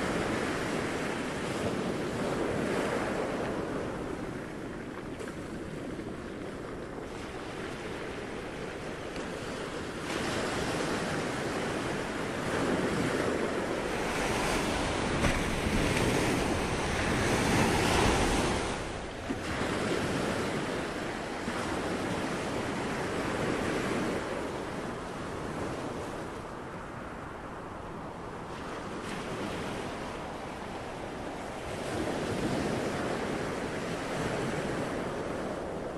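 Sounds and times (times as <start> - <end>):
ocean waves rushing: 9.8 - 23.6.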